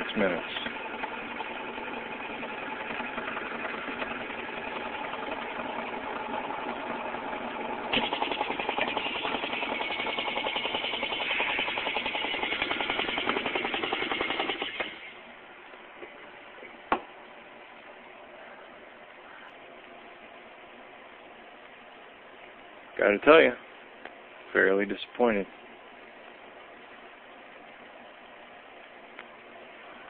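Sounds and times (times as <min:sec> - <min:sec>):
vacuum pump pulsing chatter: 0:00.0 - 0:02.4
low steady hum: 0:14.8 - 0:30.0.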